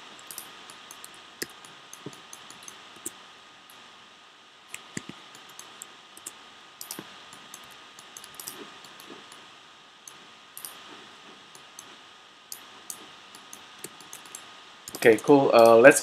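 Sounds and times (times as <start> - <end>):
faint hiss: 0.0 - 16.0
mouse and keyboard clicks: 0.2 - 3.2, 4.7 - 9.4, 12.5 - 15.0.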